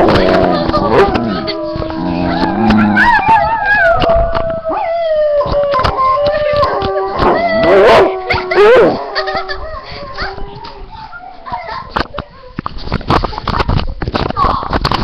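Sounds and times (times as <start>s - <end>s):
dog howling: 0.1s - 11.6s.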